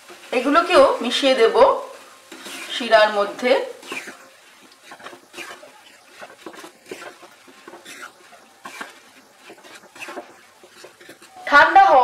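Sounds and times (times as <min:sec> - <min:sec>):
wooden spatula stirring in pan: 0:00.0 - 0:12.0.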